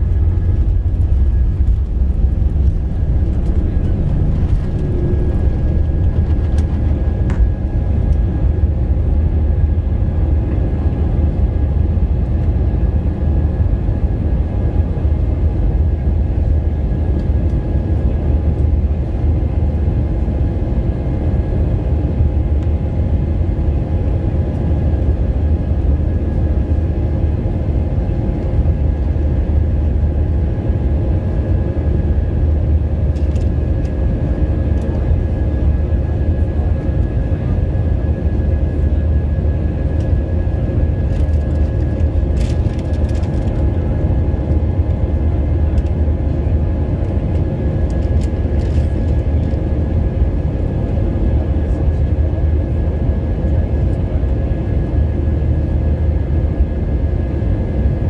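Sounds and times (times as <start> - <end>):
faint whining tones: 0.0 - 8.5
jet engines loud rumble: 0.0 - 58.0.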